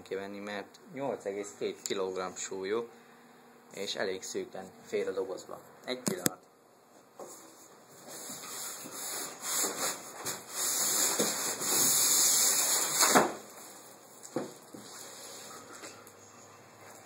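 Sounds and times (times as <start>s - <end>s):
packaging scraping against cardboard: 8.0s - 13.4s.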